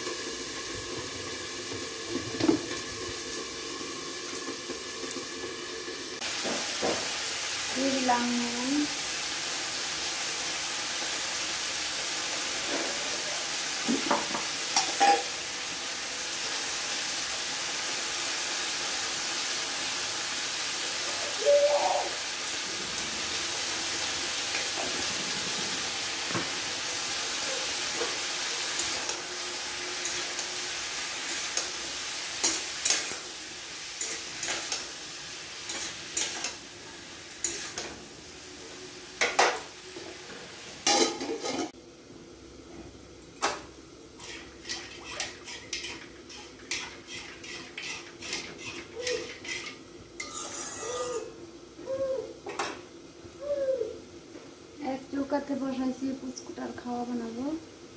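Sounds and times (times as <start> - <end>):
vegetables sizzling in oil: 0.0 - 57.9
spatula scraping and clinking wok: 32.4 - 33.2, 34.0 - 34.9, 35.6 - 36.6, 37.3 - 38.0, 40.8 - 41.8, 44.2 - 51.2.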